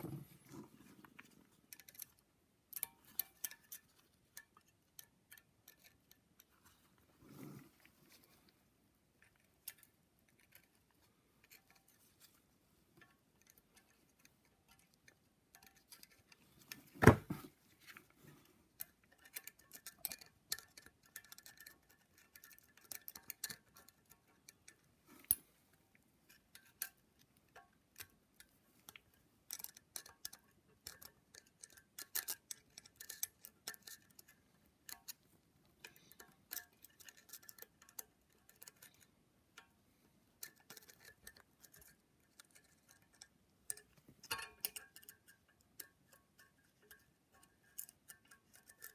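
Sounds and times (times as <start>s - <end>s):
metal tools clicking and tapping: 1.1s - 6.8s, 12.9s - 17.2s, 18.4s - 25.5s, 26.3s - 39.7s, 40.4s - 48.9s.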